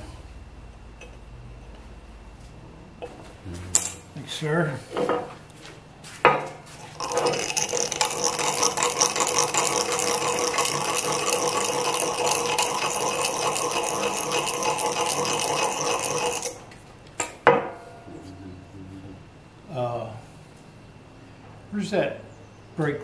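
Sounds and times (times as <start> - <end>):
power tool rattling on metal: 6.8 - 16.7.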